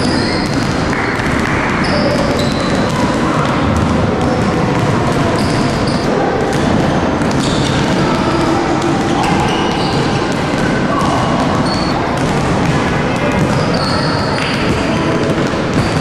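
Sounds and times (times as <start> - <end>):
basketballs bouncing on wooden floor: 0.0 - 16.0
children's voices: 2.9 - 15.5.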